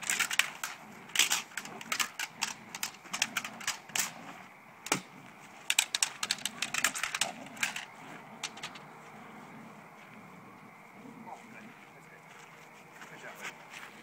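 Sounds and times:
clatter stick clacking: 0.0s - 4.2s, 4.8s - 8.8s
heavy crack: 0.0s - 8.8s.

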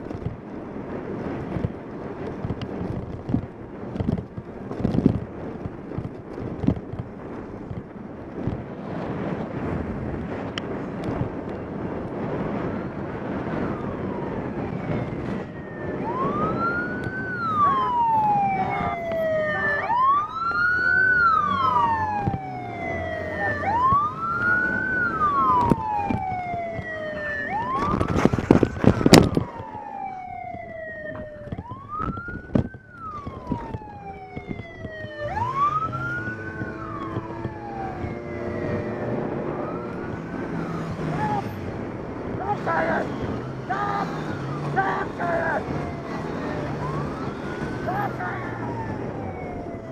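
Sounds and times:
police siren wailing: 12.2s - 49.9s.

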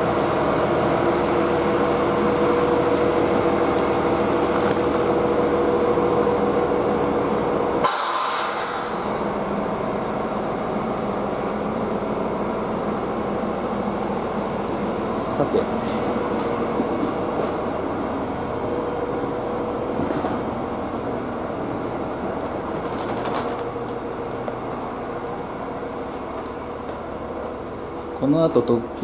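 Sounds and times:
diesel railcar engine humming: 0.0s - 29.0s
air release hiss: 7.8s - 9.3s.

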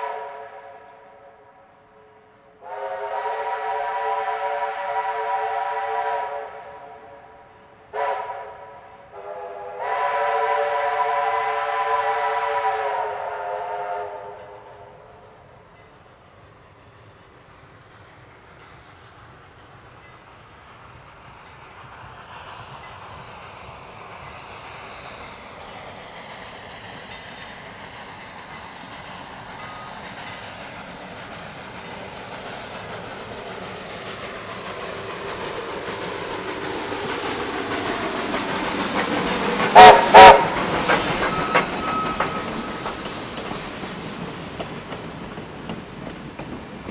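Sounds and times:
steam locomotive whistle: 0.0s - 1.4s, 2.6s - 7.3s, 7.9s - 14.9s, 39.2s - 43.1s
steam train running: 0.0s - 46.9s.

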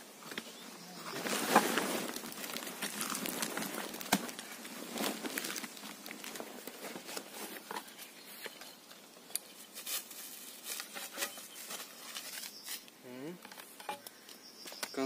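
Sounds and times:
plastic and fabric crinkling: 1.0s - 8.8s.

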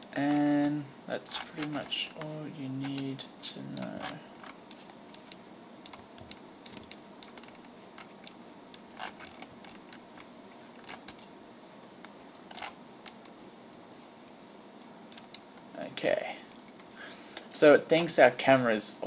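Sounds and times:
microphone hiss: 0.0s - 19.0s
mouse and keyboard clicks: 3.8s - 11.3s.

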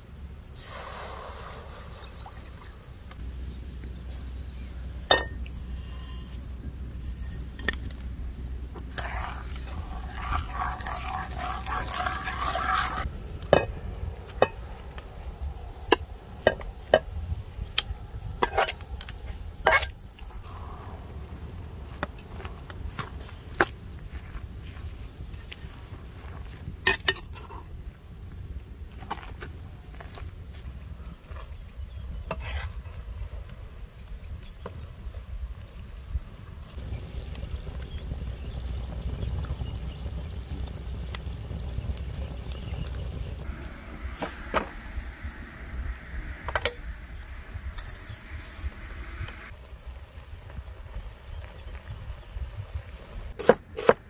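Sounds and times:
high insect chirring: 1.0s - 21.6s
metal skimmer scraping bowl: 8.9s - 13.1s.

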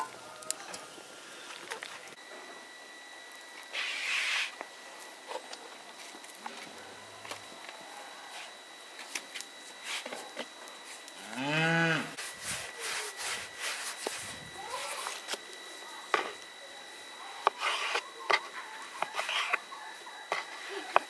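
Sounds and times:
cow mooing: 11.2s - 12.2s.

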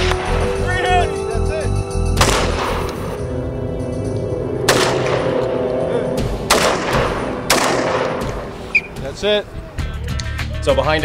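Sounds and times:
background music with held tones: 0.0s - 11.0s
gunshots: 2.2s - 3.1s, 4.7s - 5.4s, 6.4s - 8.7s.

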